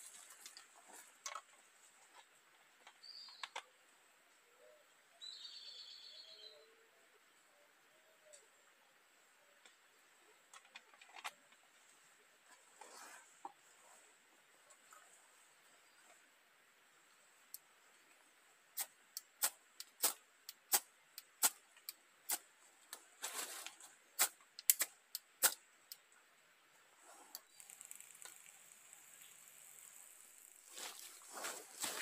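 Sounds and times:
burner hissing: 27.0 - 32.0.

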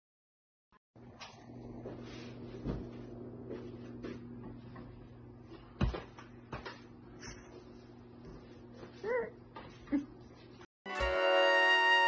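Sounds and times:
steady low hum: 1.0 - 10.6.

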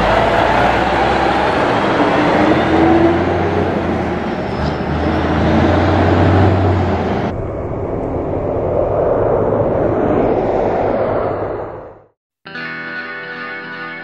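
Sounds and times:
diesel truck engine running: 0.0 - 7.3
distant road and engine noise: 0.0 - 12.0.

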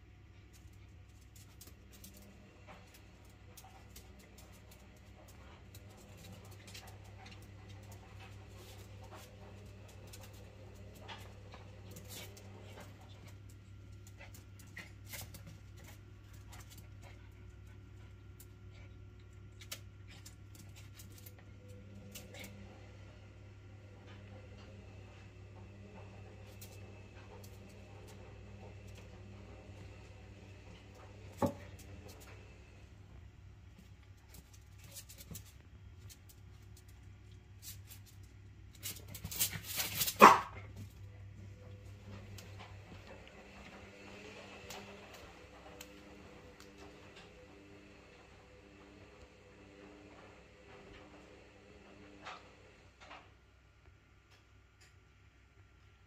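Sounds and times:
low steady hum: 0.0 - 49.4
faint clicks and scuffling: 24.0 - 47.4
dog barking: 40.1 - 40.7.

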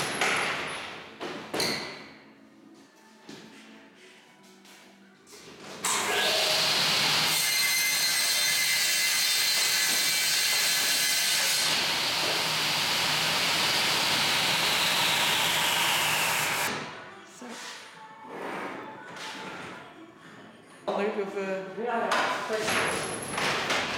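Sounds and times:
panel saw whining: 11.3 - 16.7.

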